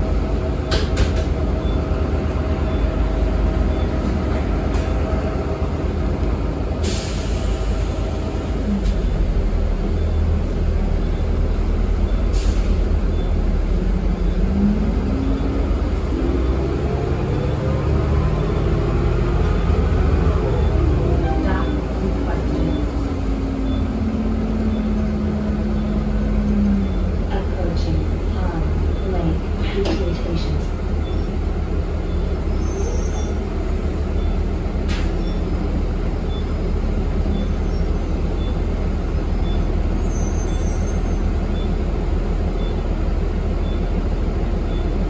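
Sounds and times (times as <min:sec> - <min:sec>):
bus engine and road rumble: 0:00.0 - 0:45.0.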